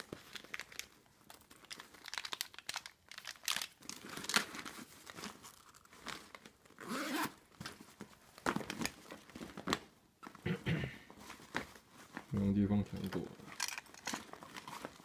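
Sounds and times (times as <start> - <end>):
packaging rustling and crinkling: 0.0 - 10.4, 11.1 - 15.0.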